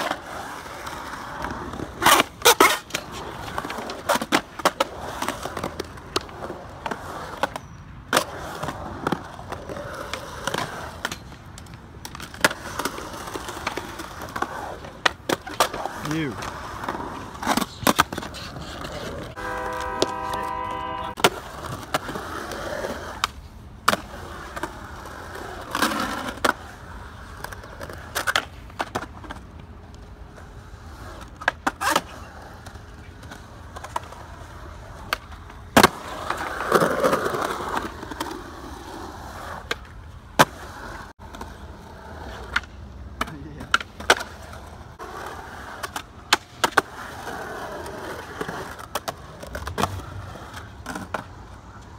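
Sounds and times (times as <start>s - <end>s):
skateboard popping and landing: 0.0s - 51.9s
skateboard wheels rolling on concrete: 0.0s - 51.9s
held pitched tone: 19.4s - 21.2s.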